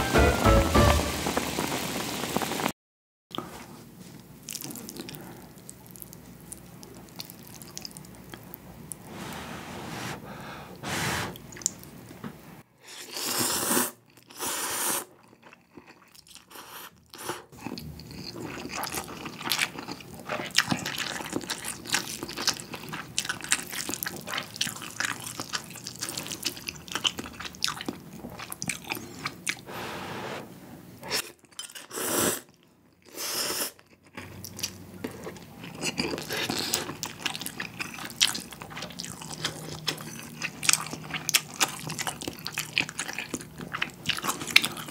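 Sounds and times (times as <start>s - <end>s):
wet chewing: 15.2s - 29.6s, 33.8s - 44.9s.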